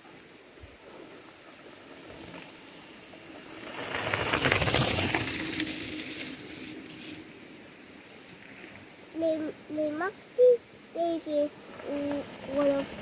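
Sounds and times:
mountain bike passing on dirt trail: 0.4 - 9.2, 11.3 - 13.0.

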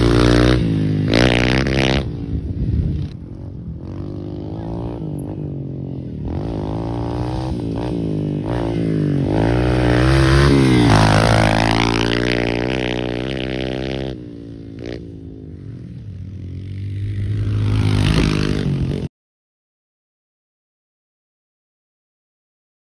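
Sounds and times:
dirt bike engine revving: 0.0 - 19.1.

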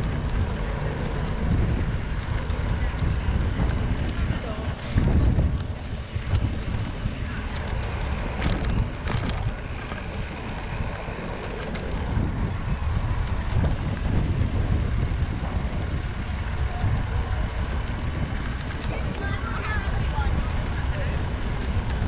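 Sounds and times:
wind buffeting microphone: 0.0 - 22.0.

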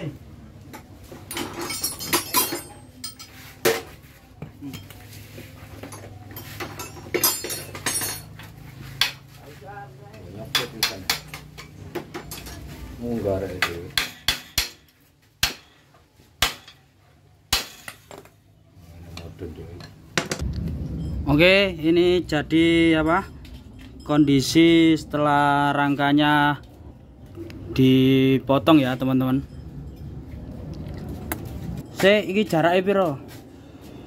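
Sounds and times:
metal tools clinking on metal: 0.7 - 4.0, 4.6 - 9.3, 10.1 - 15.0, 23.0 - 26.0.

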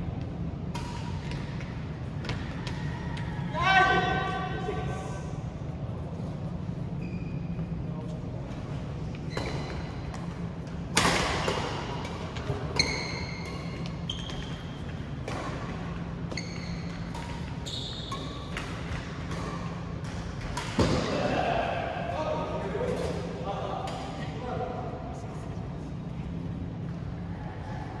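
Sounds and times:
shoe squeaks: 6.8 - 8.2, 9.2 - 10.0, 12.6 - 15.0, 15.9 - 18.7.

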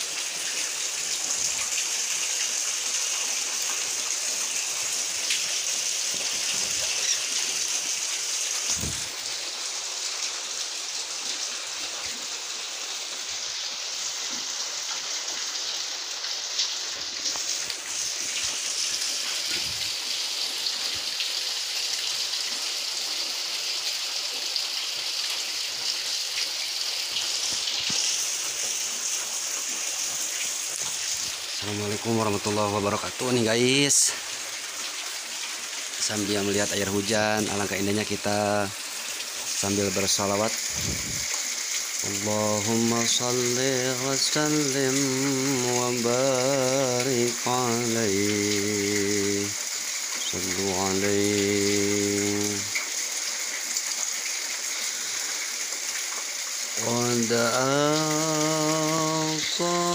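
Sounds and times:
heavy rain on paving and roof: 0.0 - 59.9.

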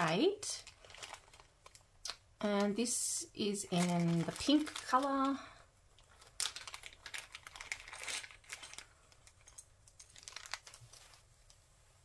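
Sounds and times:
plastic bag crinkling: 0.0 - 2.8, 3.5 - 11.3.

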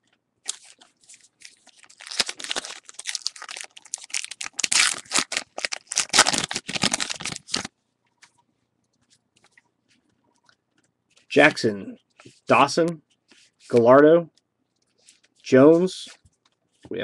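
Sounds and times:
wrapper tearing and crinkling: 0.5 - 7.7.

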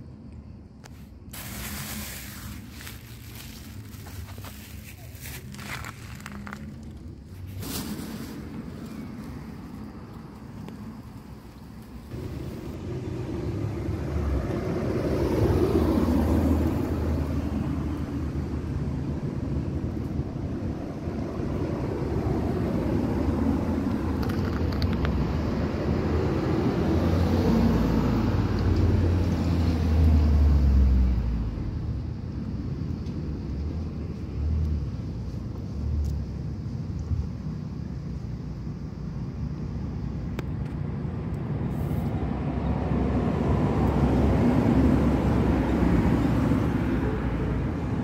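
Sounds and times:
low engine rumble: 0.0 - 29.8.

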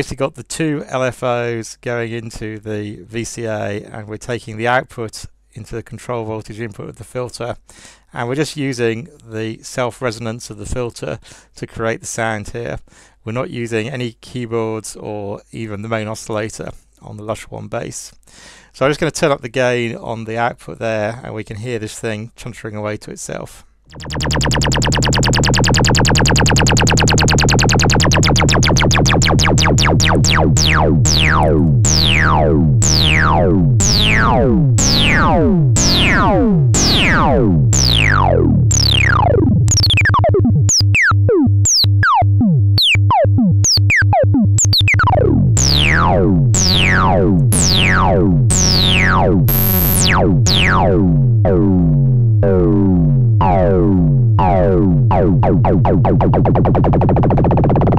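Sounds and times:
synthesizer falling pitch sweeps: 23.9 - 57.9
synthesizer low drone: 23.9 - 57.9.

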